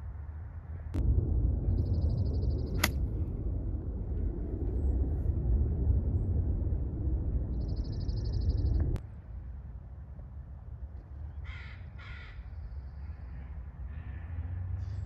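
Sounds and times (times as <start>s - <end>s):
wind buffeting microphone: 0.9s - 9.0s
golf club striking ball: 2.8s - 3.0s.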